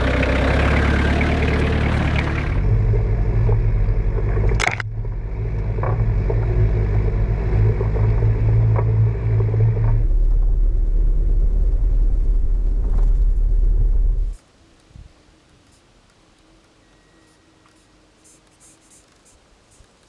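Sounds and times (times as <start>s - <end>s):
low engine rumble: 0.0s - 14.4s.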